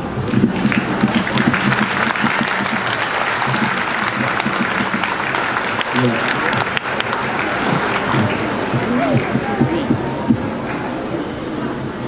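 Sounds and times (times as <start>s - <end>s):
large audience applauding: 0.2s - 9.7s.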